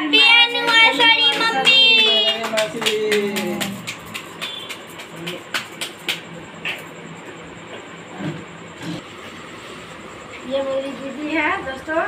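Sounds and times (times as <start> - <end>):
hand claps: 0.6 - 7.1.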